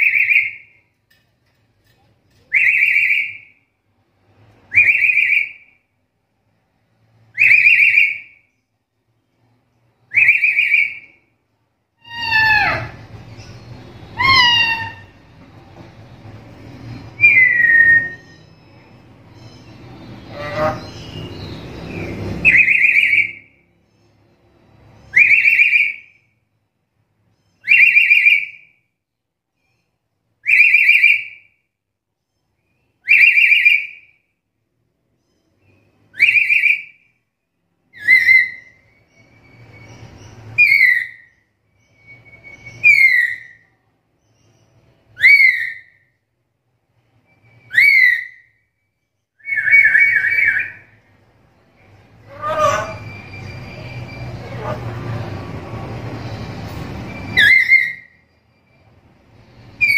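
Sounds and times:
parrot whistle-like call: 4.7 - 5.7, 7.4 - 8.4, 10.1 - 11.2, 12.0 - 13.0, 14.1 - 15.1, 17.2 - 18.5, 25.1 - 26.2, 27.6 - 28.7, 30.4 - 31.5, 33.0 - 34.2, 36.1 - 37.0, 37.9 - 38.9, 40.6 - 41.3, 41.9 - 43.6, 45.2 - 46.1, 47.5 - 48.6, 49.4 - 51.0, 52.2 - 54.8, 57.1 - 58.2.

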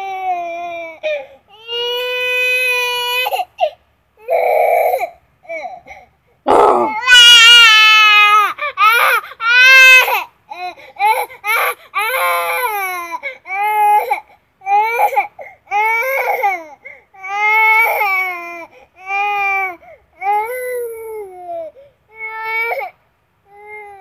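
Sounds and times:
baby crying: 6.5 - 10.3.

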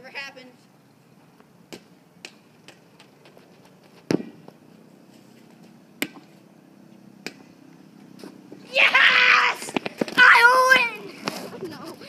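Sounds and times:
ball kicked dull thump: 4.1 - 4.4, 6.0 - 6.3.

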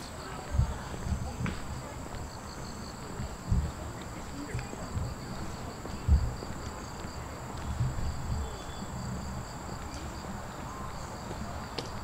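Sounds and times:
night insects trilling: 0.0 - 12.0
low thumps: 3.2 - 3.9, 4.6 - 6.5, 7.6 - 9.4.

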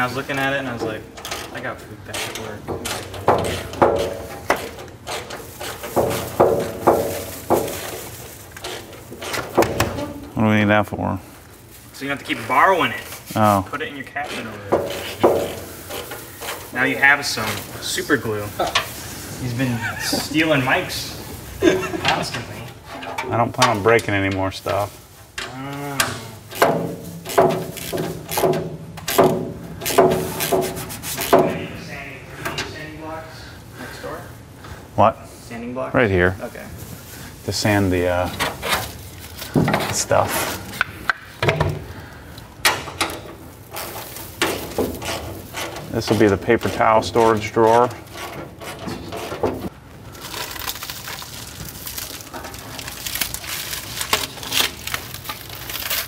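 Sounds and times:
metal cabinet parts knocking: 2.4 - 4.8, 5.8 - 7.9, 14.7 - 15.7, 26.6 - 31.8
plastic wrap crinkling: 5.4 - 10.2, 11.3 - 14.1, 14.9 - 22.6, 36.3 - 40.8, 43.4 - 47.6, 49.7 - 56.0.

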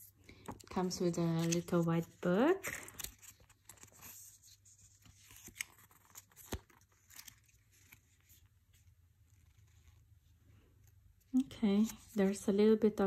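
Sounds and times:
paper pages rustling: 0.4 - 10.2.

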